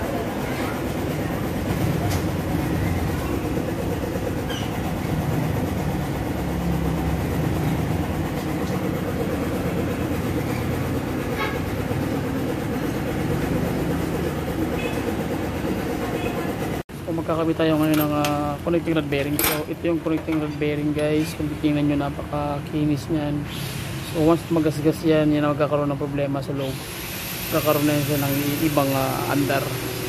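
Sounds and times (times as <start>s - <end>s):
machine rumbling and rattling: 0.0s - 22.9s.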